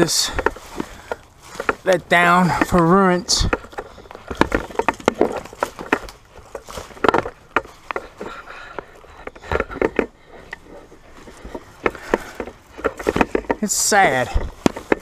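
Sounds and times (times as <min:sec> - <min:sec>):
footsteps crunching through dry leaves: 0:00.0 - 0:09.4.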